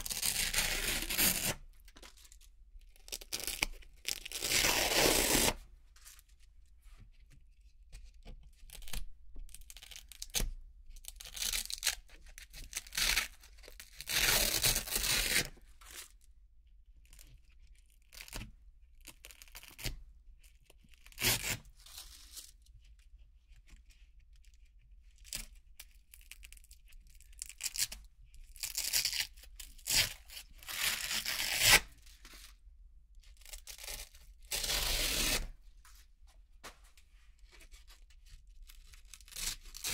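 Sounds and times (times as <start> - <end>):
velcro ripping: 0.0 - 1.6, 3.1 - 5.6, 14.0 - 15.5, 28.6 - 31.9, 33.4 - 35.6, 38.9 - 39.9.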